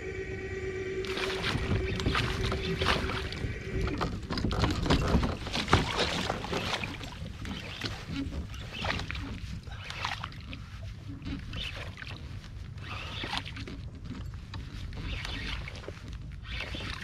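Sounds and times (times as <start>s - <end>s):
steady hum: 0.0s - 6.5s
fish splashing in water: 4.9s - 10.8s.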